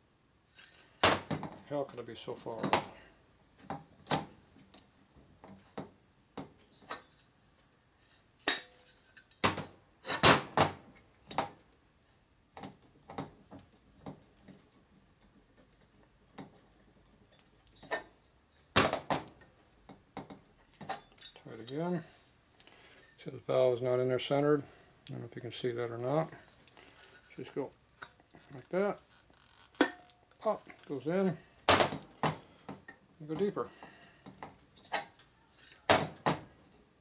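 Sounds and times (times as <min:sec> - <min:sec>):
metal tools clicking and clinking: 0:20.7 - 0:22.0.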